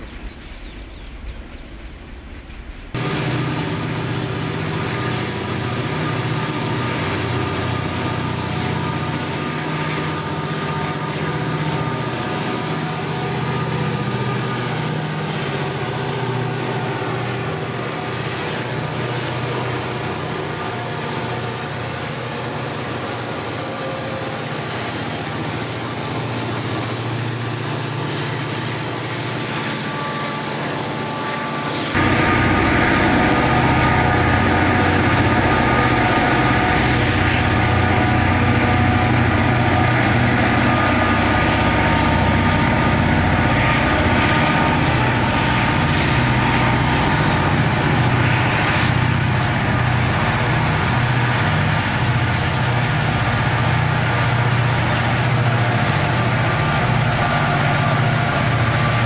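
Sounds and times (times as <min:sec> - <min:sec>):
freight locomotive engine drone: 0:00.0 - 0:59.0
freight wagons passing: 0:00.0 - 0:59.0.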